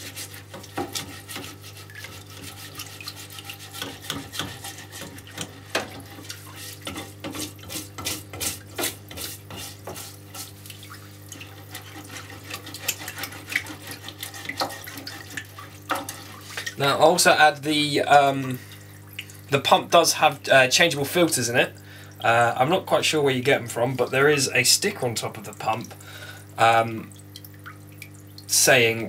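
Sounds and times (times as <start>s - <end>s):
brush scrubbing metal: 0.0s - 16.7s
fluid running: 0.0s - 29.0s
pump humming: 0.0s - 29.0s.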